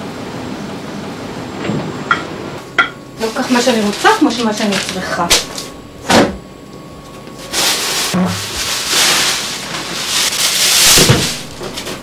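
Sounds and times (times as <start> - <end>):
plastic bags rustling: 3.2 - 6.0, 7.1 - 12.0.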